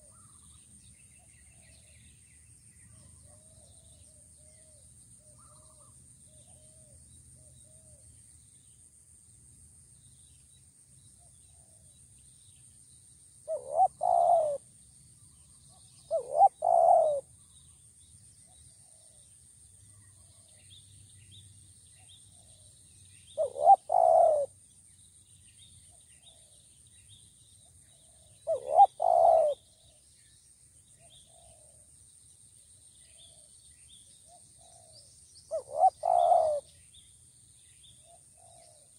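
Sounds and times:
dove cooing: 13.5 - 14.6, 16.1 - 17.3, 23.4 - 24.6, 28.4 - 29.7, 34.3 - 36.7.

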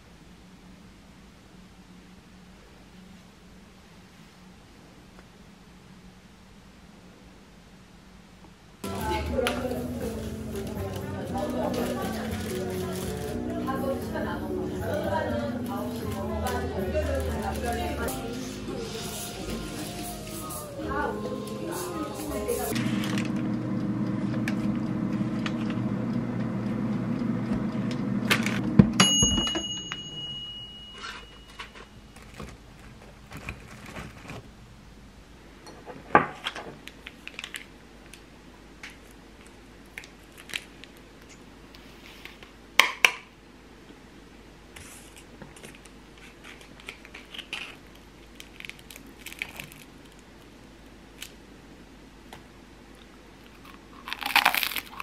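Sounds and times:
kitchen appliance humming: 8.8 - 29.0
pastries tearing: 46.2 - 50.5, 53.5 - 55.0.

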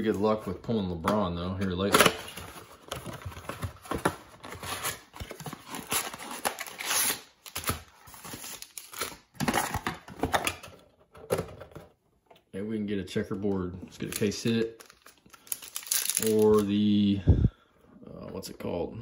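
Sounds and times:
cardboard box tearing: 3.5 - 9.9
foil packs crinkling: 14.1 - 16.8.

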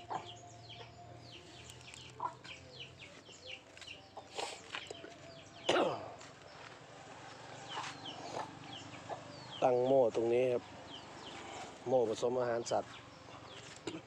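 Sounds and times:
chickens clucking: 0.0 - 6.6, 7.5 - 11.8.

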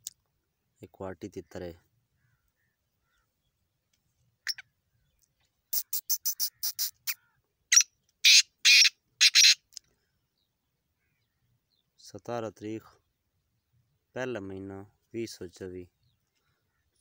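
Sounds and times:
francolin calling: 4.4 - 9.7.

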